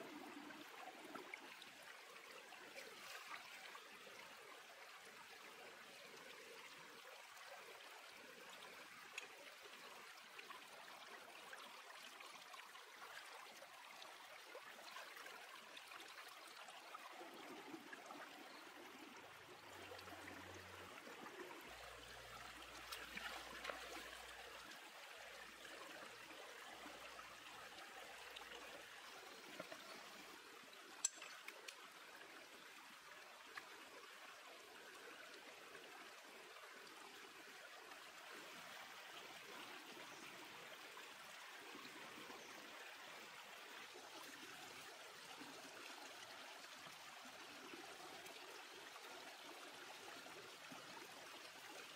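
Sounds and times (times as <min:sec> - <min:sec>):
stream water running over rocks: 0:00.0 - 0:51.9.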